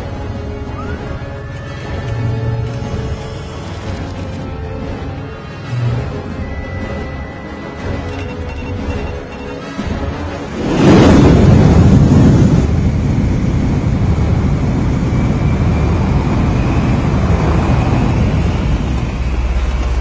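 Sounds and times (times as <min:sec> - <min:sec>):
jet engines roaring: 0:00.0 - 0:20.0
jet engine whine rising in pitch: 0:10.4 - 0:20.0.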